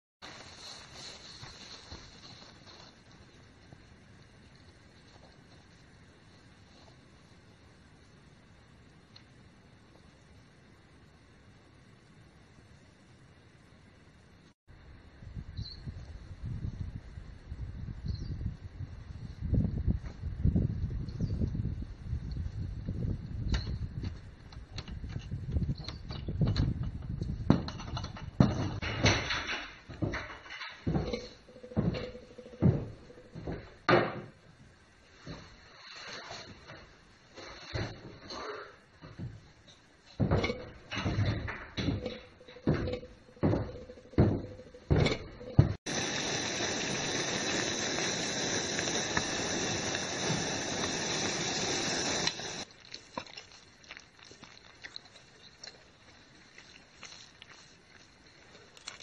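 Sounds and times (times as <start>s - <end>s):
boots knocking on wood: 30.9s - 34.1s, 40.2s - 45.8s
camping stove burner hissing: 45.6s - 53.8s.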